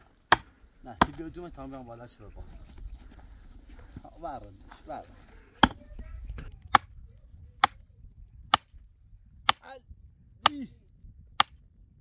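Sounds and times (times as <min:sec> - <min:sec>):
sledgehammer knocking a wooden stake: 0:00.0 - 0:01.4, 0:05.6 - 0:05.8, 0:11.4 - 0:11.6.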